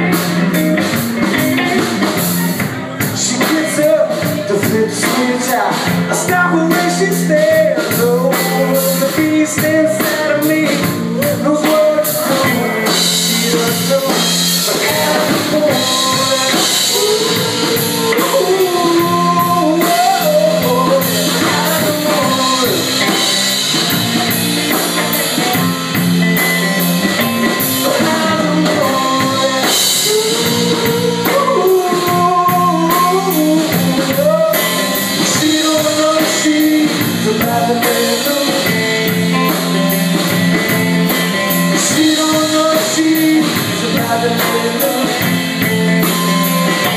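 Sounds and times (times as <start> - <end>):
drum kit: 0.0 - 46.9
guitars: 0.0 - 46.9
lead guitar line bending pitch: 12.8 - 35.3.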